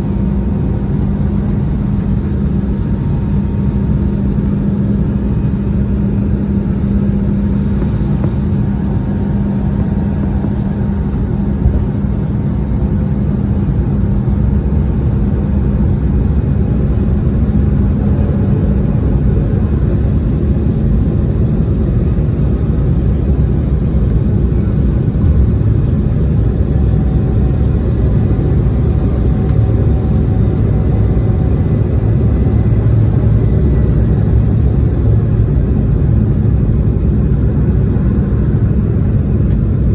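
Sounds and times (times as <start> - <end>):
engine hum: 0.0 - 39.9
jet cabin engine roar: 0.0 - 39.9.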